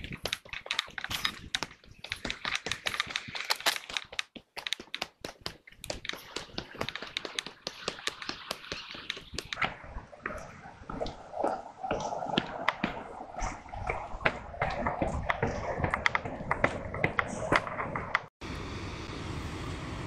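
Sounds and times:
footsteps crunching on gravel: 0.0 - 9.6.

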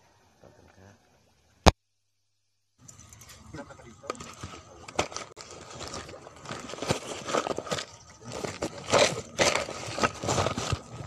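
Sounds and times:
camera scraping on rough rock: 4.2 - 11.0.

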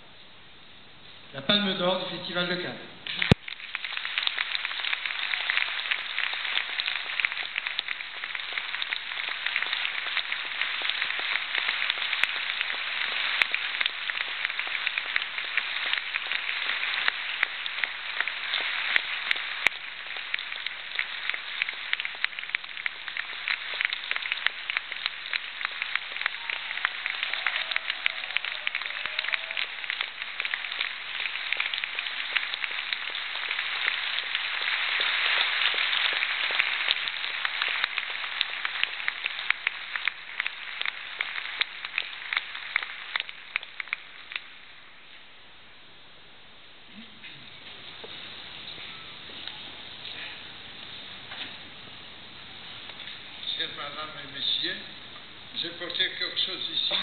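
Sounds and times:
audience applauding: 3.0 - 45.0, 55.6 - 57.0.

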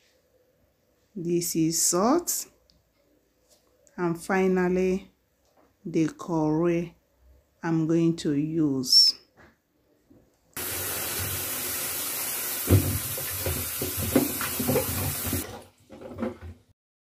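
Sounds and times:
tap running into steel sink: 10.6 - 16.5
knocks and clunks of handling: 12.8 - 16.7.

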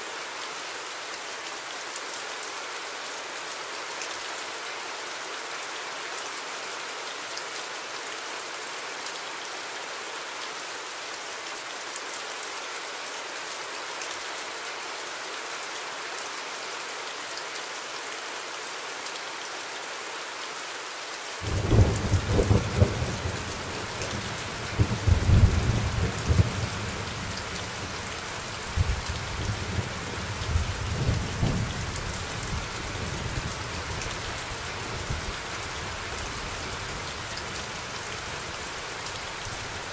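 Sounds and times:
steady rain: 0.0 - 39.9.

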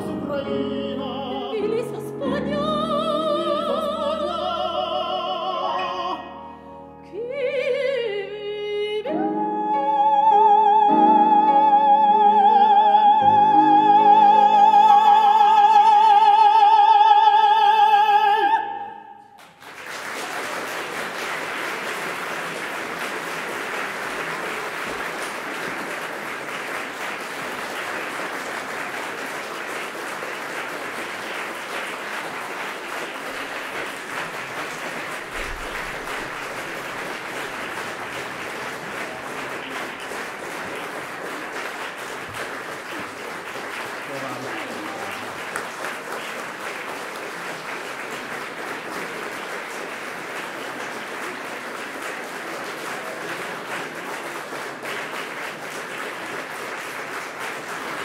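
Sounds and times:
soprano and man singing opera: 0.0 - 6.4, 7.0 - 19.2
audience applause: 13.3 - 18.6, 19.2 - 58.0.

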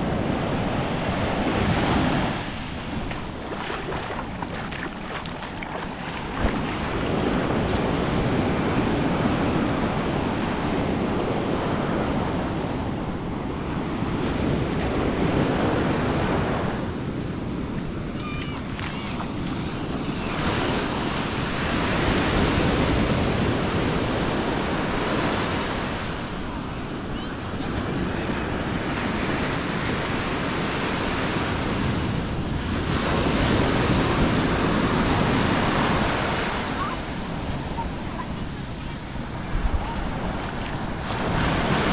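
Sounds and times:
surf breaking on sand: 0.0 - 10.2, 27.6 - 41.9.

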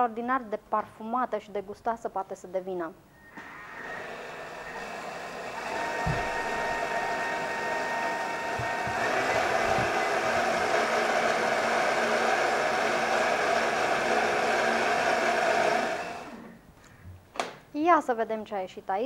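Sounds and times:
blender motor running: 3.3 - 16.6.

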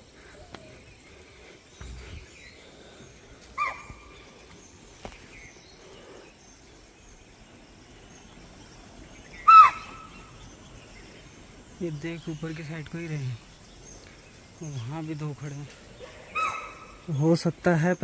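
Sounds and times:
deer alarm calls: 3.6 - 4.1, 9.3 - 10.2, 16.0 - 17.1.

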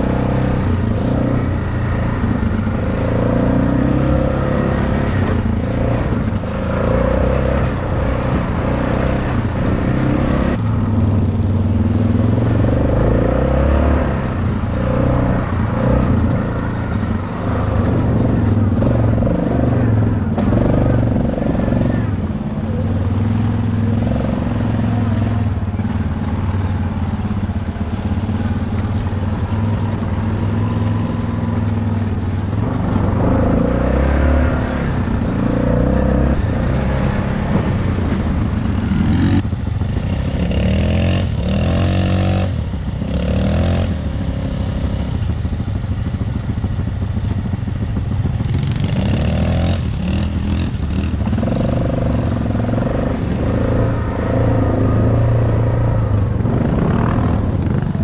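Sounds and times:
dirt bike engine: 0.0 - 58.0.

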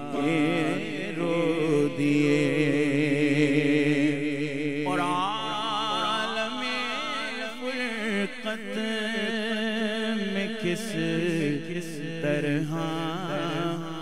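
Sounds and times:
man singing unaccompanied: 0.0 - 14.0.

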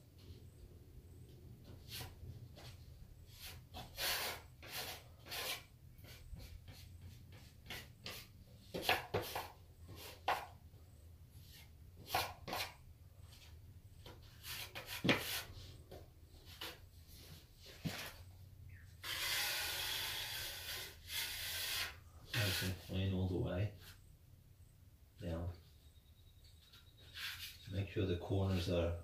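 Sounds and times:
knife scraping plaster: 3.4 - 10.5, 19.0 - 22.9.

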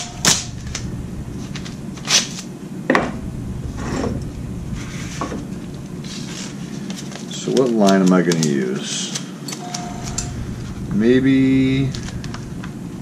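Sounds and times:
steady low hum: 0.0 - 8.1, 8.7 - 13.0
hands rubbing and rustling: 4.2 - 10.9, 11.9 - 12.8.

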